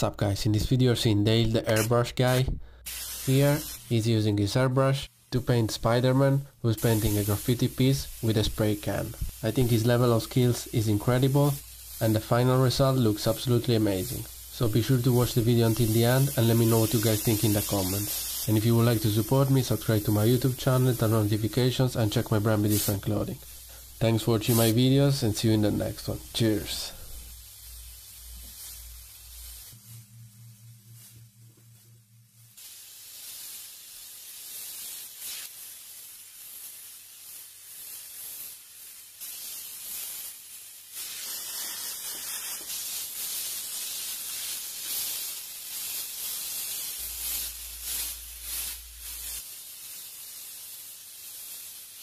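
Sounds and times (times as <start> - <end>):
airbrush spraying: 1.7 - 4.1, 5.1 - 52.0.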